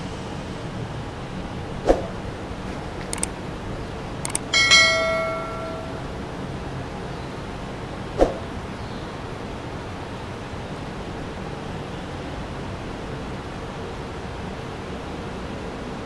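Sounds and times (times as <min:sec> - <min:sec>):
street ambience hiss: 0:00.0 - 0:16.0
mouse clicks: 0:03.1 - 0:03.3
bell chime: 0:04.5 - 0:06.2.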